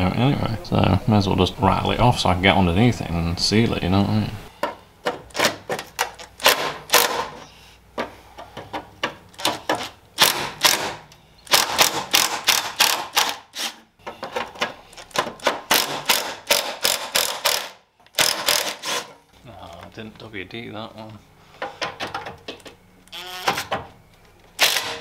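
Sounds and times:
impact driver hammering: 0:04.6 - 0:07.4, 0:09.4 - 0:13.8, 0:15.1 - 0:19.1, 0:24.6 - 0:25.0.

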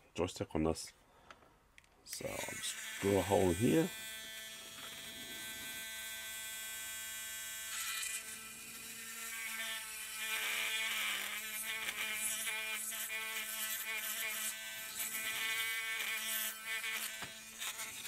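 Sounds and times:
rotary tool drilling plastic: 0:07.4 - 0:18.0.

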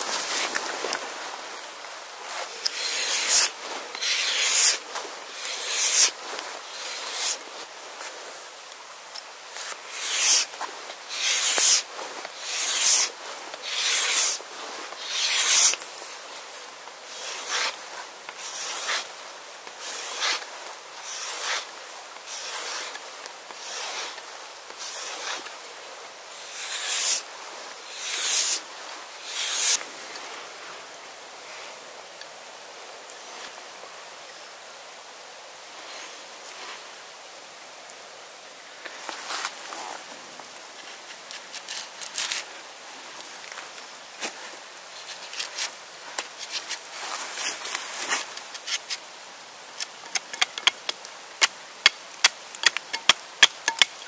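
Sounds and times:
rasping strokes: 0:02.2 - 0:08.0, 0:09.1 - 0:25.6, 0:26.3 - 0:29.8.

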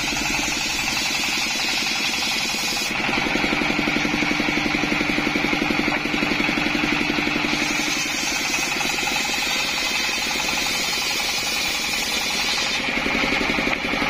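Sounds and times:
diesel engine running: 0:00.0 - 0:14.0
circular saw ripping wood: 0:00.4 - 0:03.0, 0:07.5 - 0:13.5.

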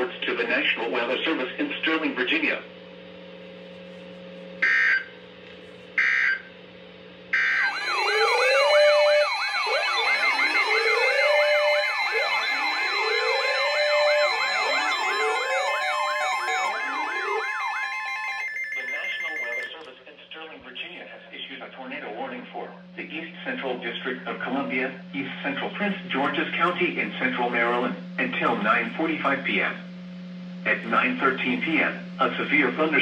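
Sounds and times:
warbling siren-like alarm sweeps: 0:04.6 - 0:05.1, 0:06.0 - 0:06.5, 0:07.3 - 0:19.8
screeching data bursts: 0:07.4 - 0:19.8
steady beeping tones: 0:07.4 - 0:19.8.

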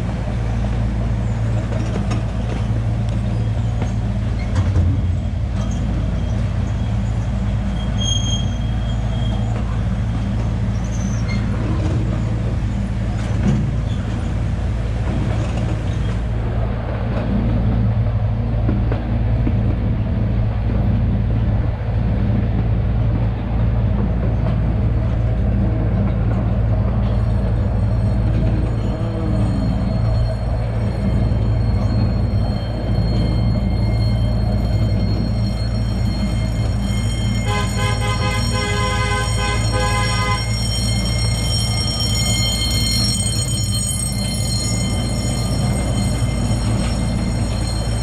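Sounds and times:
small train running on track: 0:00.0 - 0:48.0.

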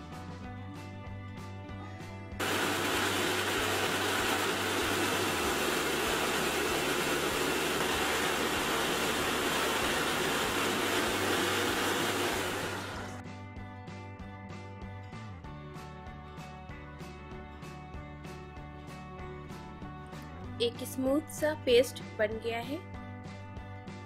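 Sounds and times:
electric mixer grinder running: 0:02.4 - 0:13.2.

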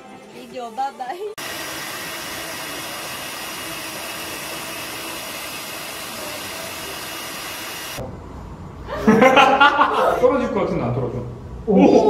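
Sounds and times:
electric hand mixer whirring: 0:01.4 - 0:08.0.

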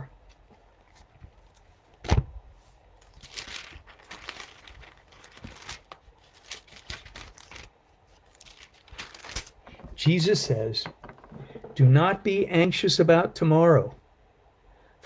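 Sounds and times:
paper pages rustling: 0:02.6 - 0:10.0.

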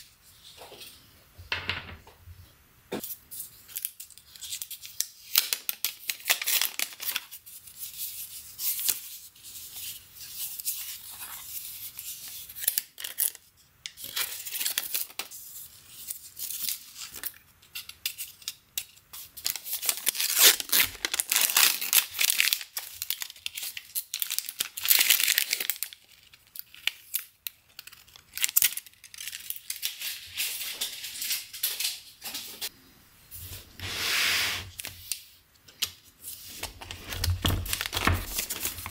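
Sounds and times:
paper crinkling and tearing: 0:04.3 - 0:07.4, 0:19.4 - 0:31.9, 0:36.3 - 0:38.9.

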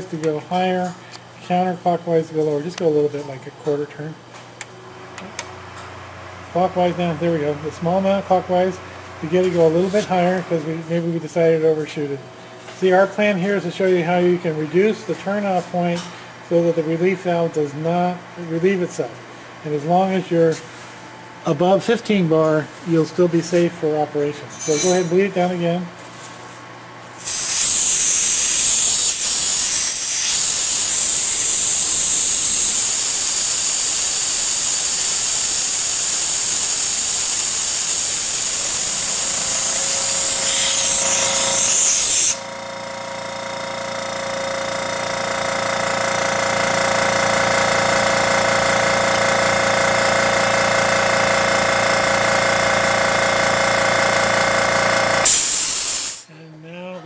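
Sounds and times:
compressor motor and pump running: 0:00.0 - 0:57.0
compressed air hissing: 0:27.2 - 0:42.4, 0:55.2 - 0:56.3.

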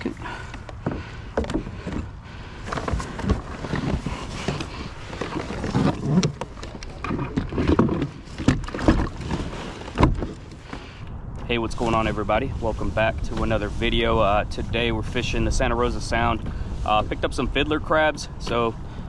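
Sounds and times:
gear knocking against kayak hull: 0:00.3 - 0:10.9.

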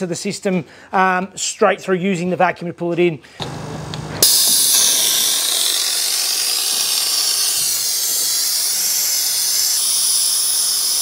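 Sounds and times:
compressed air hissing: 0:03.4 - 0:11.0.

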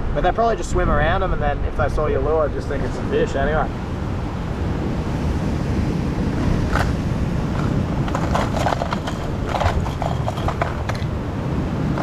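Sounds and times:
wind rumble on microphone: 0:00.0 - 0:12.0
lures clattering in tackle box: 0:07.6 - 0:11.1.

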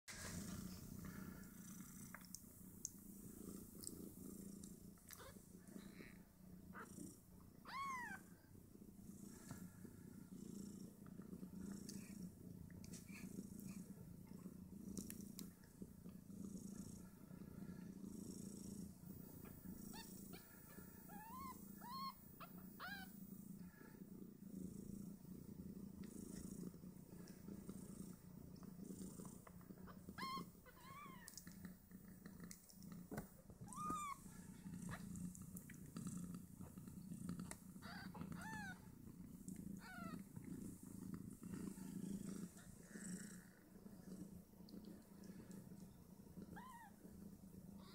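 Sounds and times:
cat purring: 0:00.1 - 0:47.9
kittens mewing: 0:19.1 - 0:23.2, 0:30.1 - 0:31.4, 0:37.8 - 0:38.8, 0:39.8 - 0:40.2.

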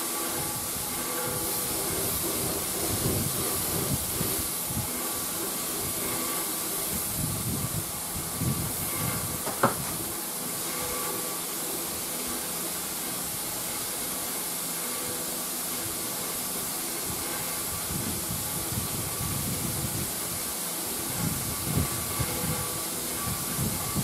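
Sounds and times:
spray hissing: 0:00.0 - 0:24.0.

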